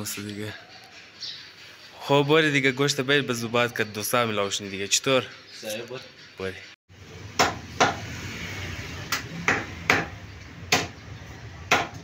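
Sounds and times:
cleaver chopping on wooden block: 7.4 - 8.0, 9.1 - 11.0, 11.7 - 12.0.

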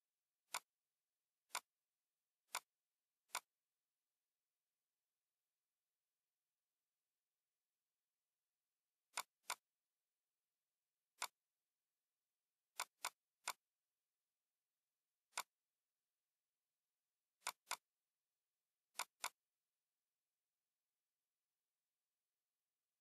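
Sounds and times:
computer mouse clicks: 0.5 - 0.7, 1.5 - 1.7, 2.5 - 2.7, 3.3 - 3.6, 9.1 - 9.7, 11.2 - 11.4, 12.7 - 13.7, 15.3 - 15.6, 17.4 - 17.9, 18.9 - 19.5.

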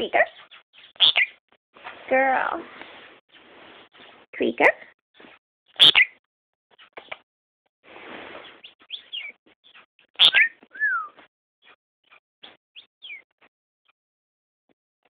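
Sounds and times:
lovebird chirps and squeaks: 0.3 - 1.4, 5.8 - 6.2, 8.4 - 11.2
sharp call with falling whistle: 10.2 - 11.2.

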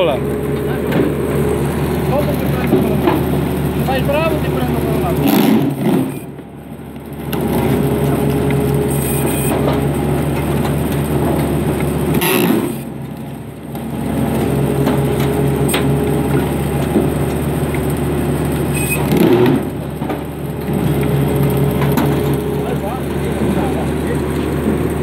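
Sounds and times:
band saw humming: 0.0 - 6.4
wood cracking: 0.8 - 25.0.

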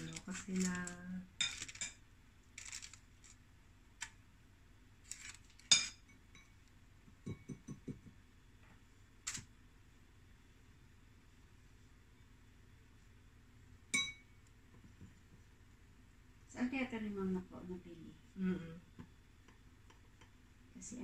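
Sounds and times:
spoon clinking on ceramic bowl: 5.7 - 6.6, 7.2 - 8.0, 13.9 - 14.3.

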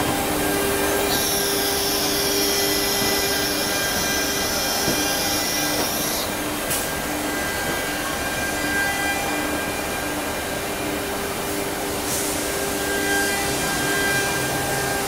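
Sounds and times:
machine whirring: 0.0 - 9.8.

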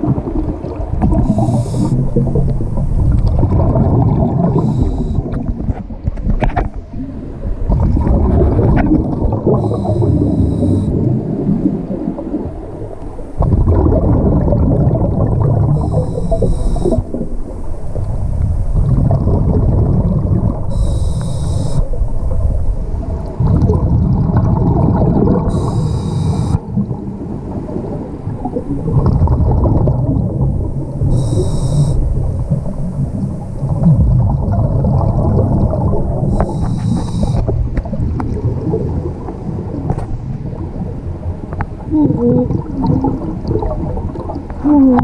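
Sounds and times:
exhaled bubbles rumbling: 0.0 - 45.0
regulator inhale hiss: 1.2 - 2.2, 4.5 - 5.3, 9.6 - 11.0, 15.8 - 17.0, 20.7 - 21.9, 25.5 - 26.6, 31.1 - 32.0, 36.3 - 37.5.

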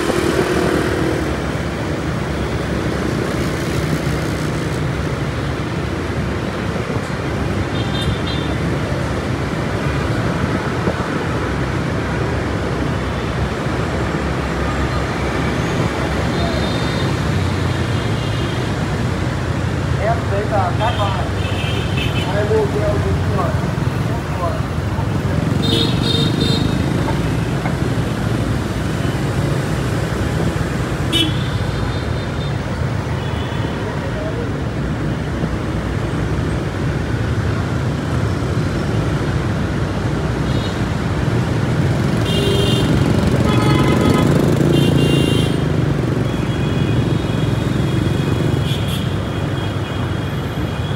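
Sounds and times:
motorbike and car traffic rumble: 0.0 - 50.9.

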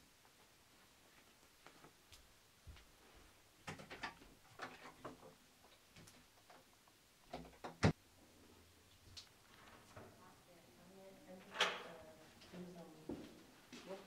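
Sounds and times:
footsteps across a room: 0.2 - 3.4, 12.1 - 14.0.

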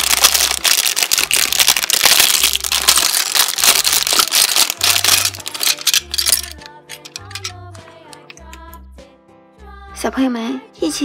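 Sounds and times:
plastic bag crinkling: 0.0 - 7.5
plastic bricks rattling: 0.0 - 7.6
children's background music: 0.0 - 11.0.

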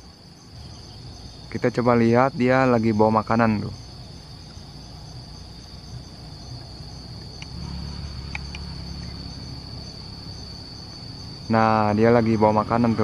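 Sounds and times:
insects droning: 0.0 - 13.0
faint chirps: 3.6 - 13.0.

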